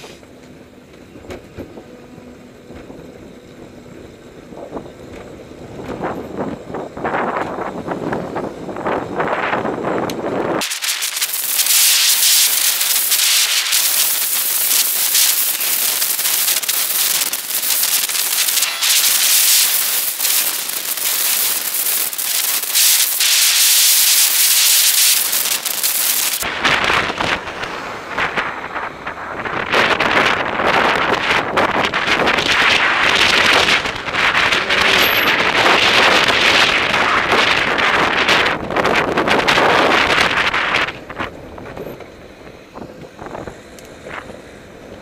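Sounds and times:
riding wind noise: 0:00.0 - 0:45.0.

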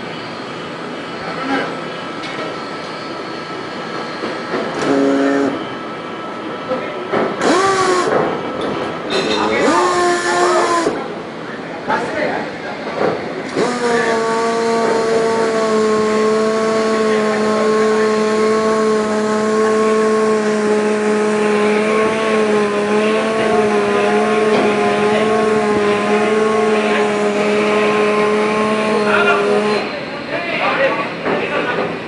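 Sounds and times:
hoisting gear drone: 0:04.5 - 0:05.7, 0:07.3 - 0:11.1, 0:13.4 - 0:29.9.

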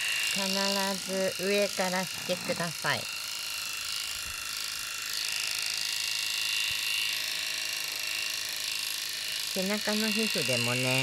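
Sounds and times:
electric pet clippers buzzing: 0:00.0 - 0:11.0.

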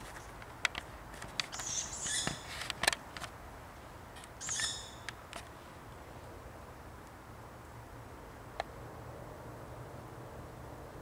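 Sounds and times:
owl harsh begging calls: 0:01.5 - 0:02.5, 0:04.4 - 0:05.1.

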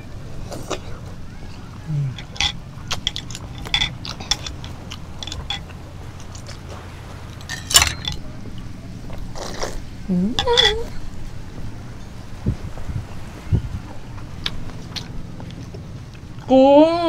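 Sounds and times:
wet chewing with lip smacks: 0:00.0 - 0:07.5, 0:08.1 - 0:11.0, 0:13.9 - 0:16.5.

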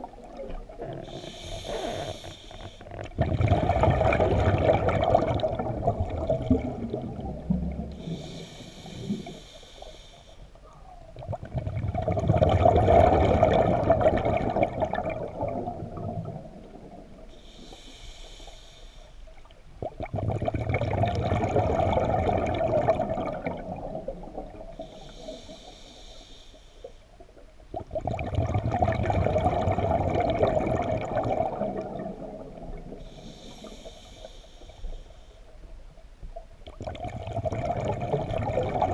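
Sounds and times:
bubbling exhaled air underwater: 0:00.0 - 0:09.5, 0:10.6 - 0:18.0, 0:19.5 - 0:25.6, 0:27.7 - 0:34.0, 0:36.6 - 0:38.9
regulator inhale hiss: 0:01.0 - 0:02.9, 0:07.9 - 0:10.6, 0:17.3 - 0:19.5, 0:24.8 - 0:27.2, 0:32.9 - 0:35.8.

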